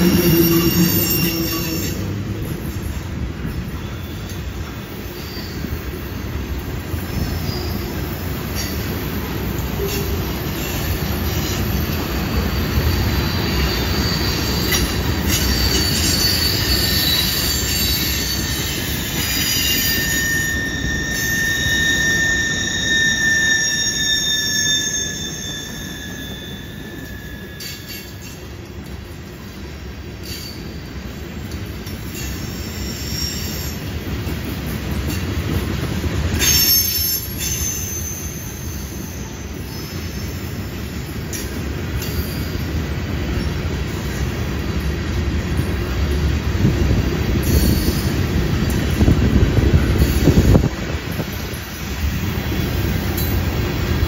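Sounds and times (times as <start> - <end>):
high-pitched wheel squeal: 0.0 - 3.0, 12.3 - 28.4, 32.2 - 33.9, 36.4 - 40.5
train wheels rumbling on rail: 0.0 - 54.0.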